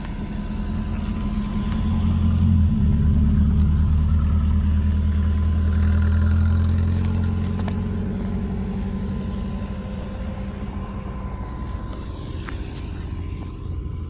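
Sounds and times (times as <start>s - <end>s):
small engine running: 0.0s - 14.0s.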